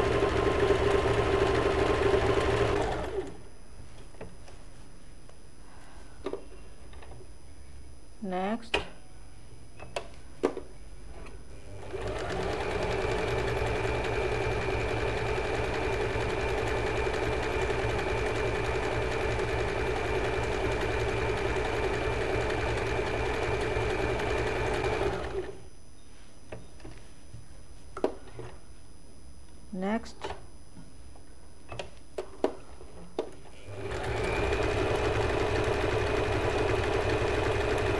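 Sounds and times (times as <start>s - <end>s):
sewing machine whining: 0.0s - 3.4s, 11.7s - 25.6s, 33.6s - 37.9s.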